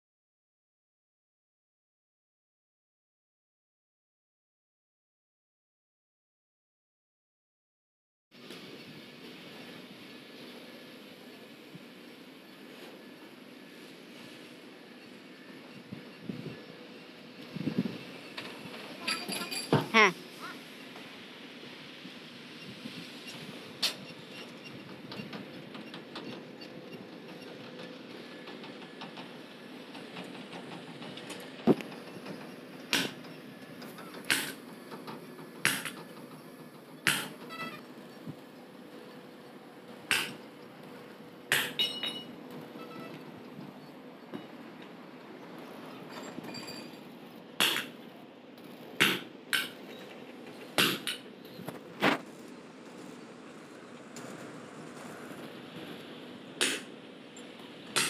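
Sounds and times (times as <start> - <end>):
sharp metal knocks and clanks: 28.7 - 36.3, 37.0 - 37.6, 40.1 - 40.5, 41.5 - 42.3, 47.6 - 48.0, 49.0 - 51.3
hammer striking steel: 34.3 - 34.6, 35.6 - 36.0, 37.0 - 37.4, 40.1 - 40.4, 41.5 - 42.4, 47.6 - 48.0, 49.0 - 49.8, 50.8 - 51.2, 56.6 - 56.9.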